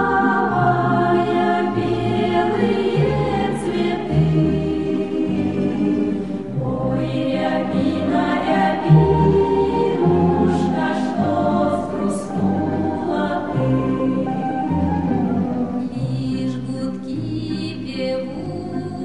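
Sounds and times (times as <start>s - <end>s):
choir singing: 0.0s - 19.0s.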